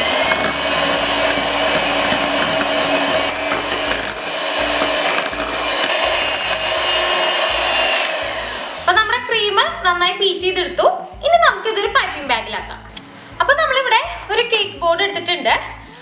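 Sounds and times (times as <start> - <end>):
electric hand mixer whine: 0.0 - 9.2.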